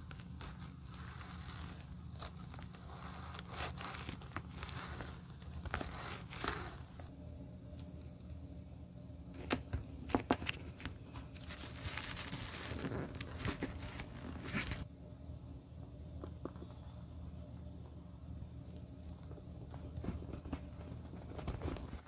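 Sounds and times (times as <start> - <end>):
crinkly rubbing handling noise: 0.0 - 7.1, 9.4 - 14.9, 18.6 - 22.0.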